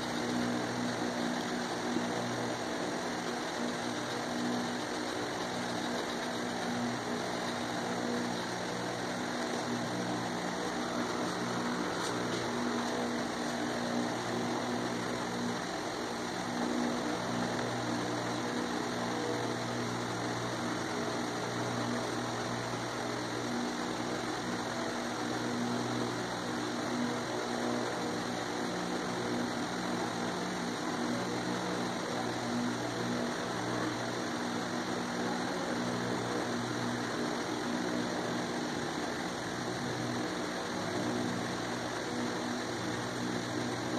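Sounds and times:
background hum with hiss: 0:00.0 - 0:43.9.

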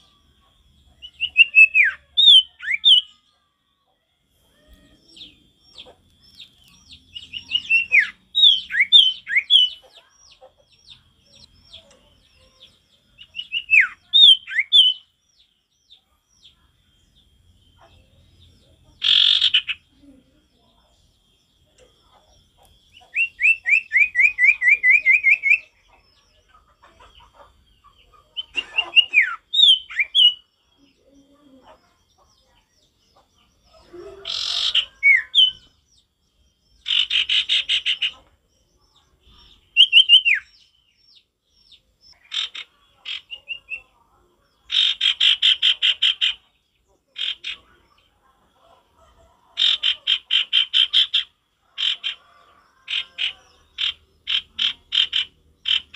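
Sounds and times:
bird song repeated notes: 0:00.0 - 0:03.3, 0:05.0 - 0:19.9, 0:28.3 - 0:30.8, 0:34.3 - 0:43.9.

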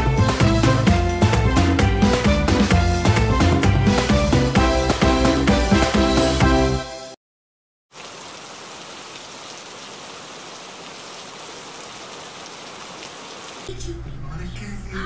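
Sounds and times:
steady rain falling: 0:07.9 - 0:13.7.

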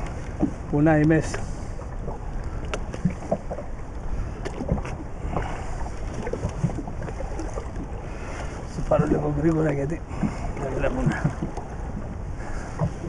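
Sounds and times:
water washing against boat hull: 0:00.0 - 0:13.0
wind buffeting microphone: 0:00.0 - 0:13.0.

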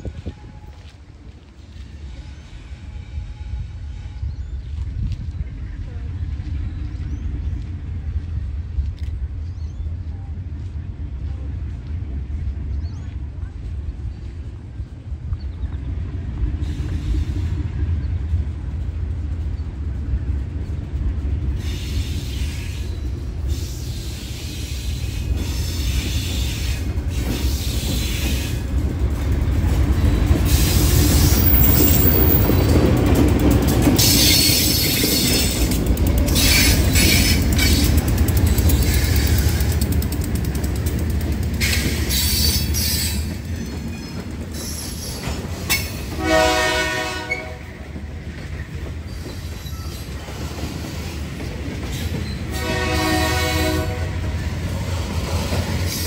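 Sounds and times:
locomotive rumble: 0:00.0 - 0:56.0
wheels clattering and squealing: 0:29.8 - 0:46.2, 0:48.3 - 0:52.5.

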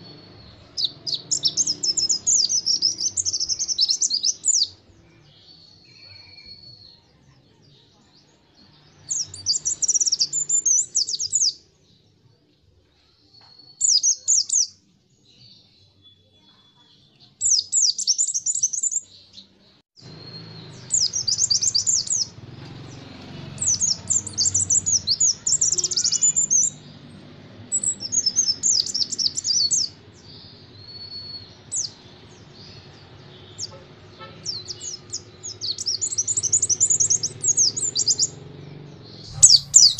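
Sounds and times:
bird twittering song: 0:00.0 - 0:12.2, 0:13.0 - 0:39.9
thin drawn-out bird whistles: 0:05.7 - 0:07.0, 0:30.8 - 0:32.0, 0:39.2 - 0:39.9.

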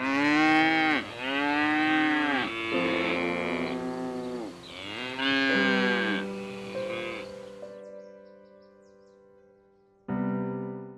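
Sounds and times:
cow mooing: 0:00.0 - 0:07.4.

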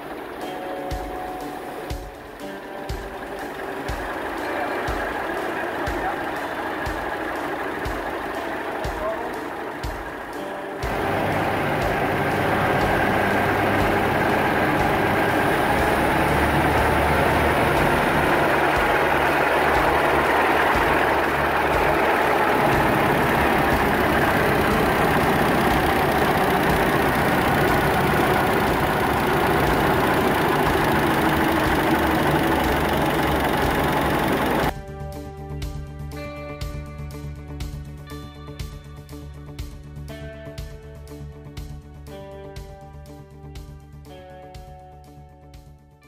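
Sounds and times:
old engine idling: 0:00.0 - 0:34.7.

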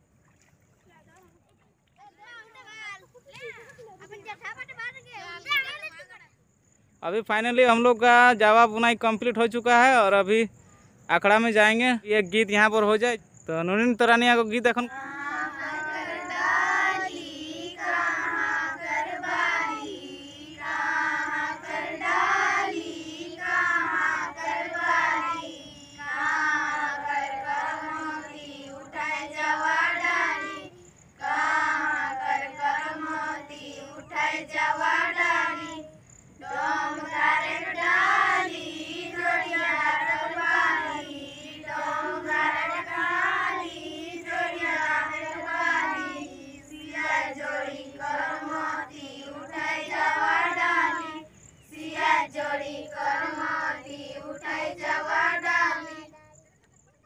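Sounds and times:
girls singing in unison: 0:14.8 - 0:56.2.

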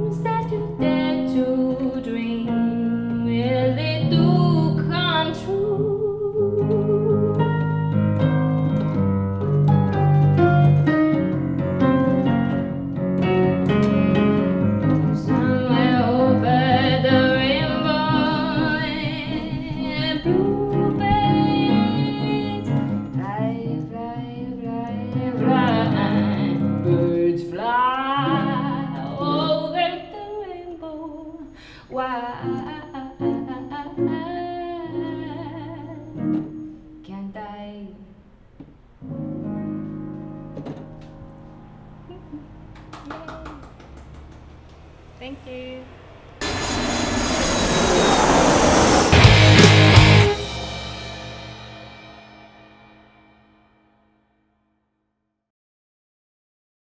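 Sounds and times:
woman singing into a microphone: 0:00.0 - 0:07.7, 0:15.1 - 0:38.1
electric keyboard: 0:00.0 - 0:31.5, 0:39.0 - 0:45.2.

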